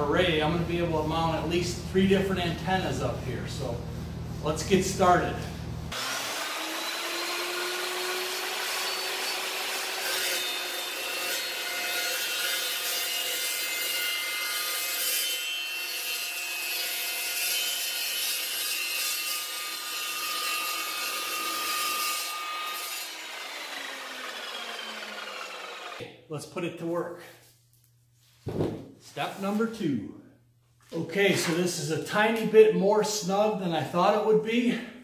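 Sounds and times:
chop saw grinding through pipe: 5.9 - 26.0
spinning blade whine: 23.2 - 26.0.

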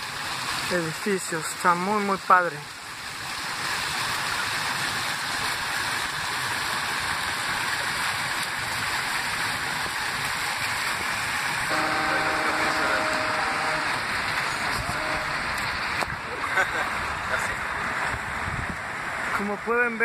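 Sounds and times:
fountain water splashing: 0.0 - 20.0
steady hum: 11.6 - 19.3.

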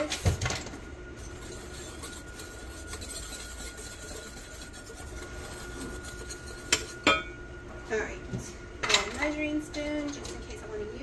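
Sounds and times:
fingers rubbing dry powder: 1.3 - 7.0.

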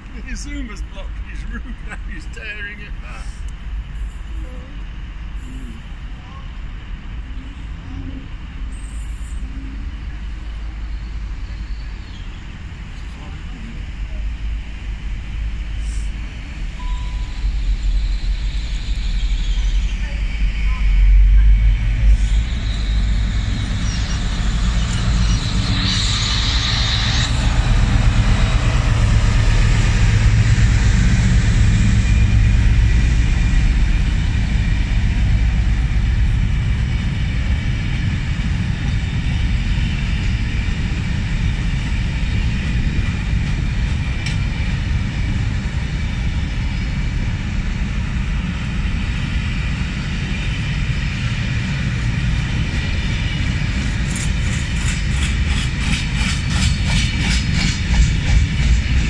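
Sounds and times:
diesel locomotive engine rumble: 0.0 - 59.0
high squeal: 8.7 - 9.9, 16.8 - 30.1.

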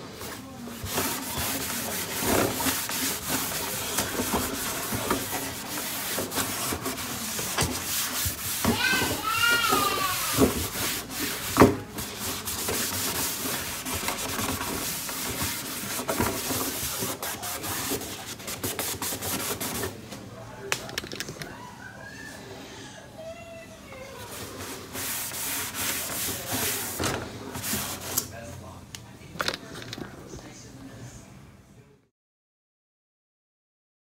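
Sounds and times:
cloth wiping on plastic: 0.2 - 19.9, 24.1 - 28.2.

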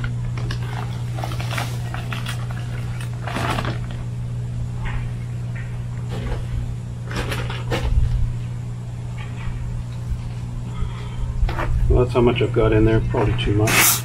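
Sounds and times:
low hum: 0.0 - 13.8
paper bag rustling and scraping: 0.5 - 4.0, 13.6 - 14.0.

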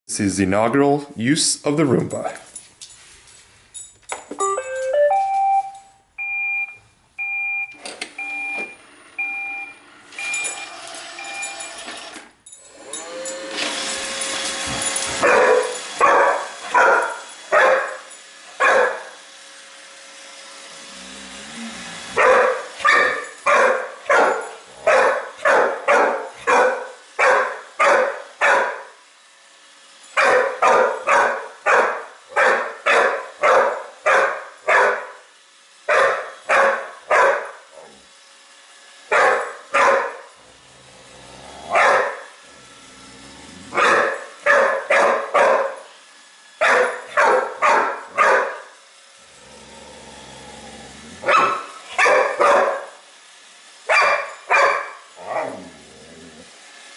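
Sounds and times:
dog barking: 15.2 - 18.0, 18.6 - 19.1, 22.2 - 29.0, 30.2 - 35.2, 35.9 - 37.6, 39.1 - 40.3, 41.7 - 42.3, 43.7 - 45.9, 46.6 - 48.7, 51.2 - 53.0, 53.9 - 55.5.

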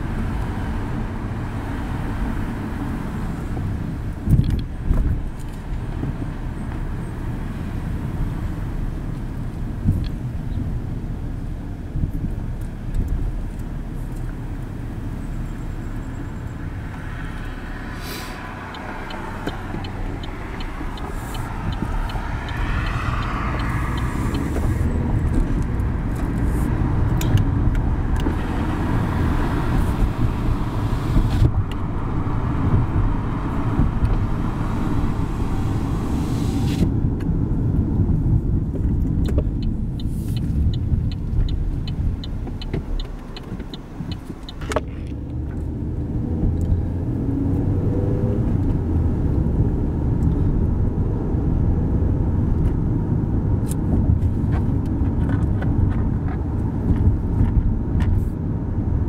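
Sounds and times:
car engine and tyre rumble: 0.0 - 59.0
light even ticking: 18.6 - 25.9, 38.9 - 45.4.

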